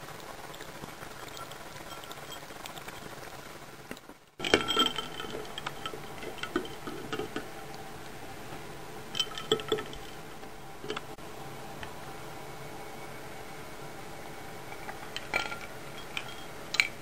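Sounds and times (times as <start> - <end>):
ice cubes and spoon clinking: 4.4 - 7.4, 9.2 - 10.2, 14.8 - 17.0.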